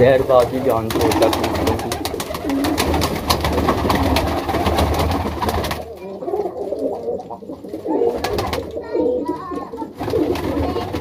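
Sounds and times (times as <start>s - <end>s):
pigeons cooing: 0.0s - 11.0s
rapid clatter of clicks: 0.2s - 5.8s.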